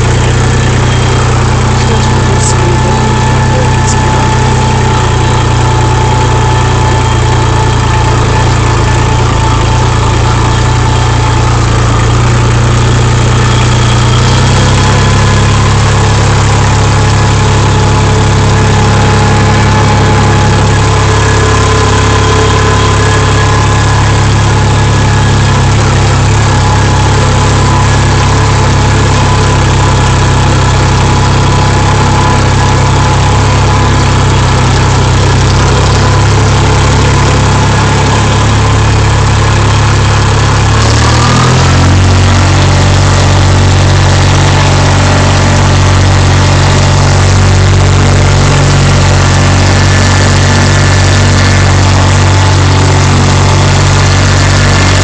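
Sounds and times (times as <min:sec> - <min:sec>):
small tractor engine running: 0:00.0 - 0:55.0.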